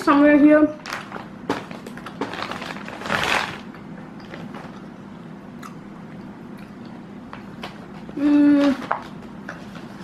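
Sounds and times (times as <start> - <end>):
plastic snack packet crinkling: 0.8 - 3.7.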